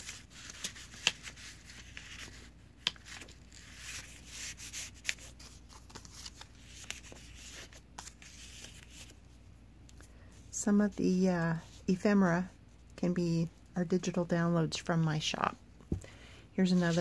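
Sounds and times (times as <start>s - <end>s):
paper pages rustling: 0.0s - 9.2s.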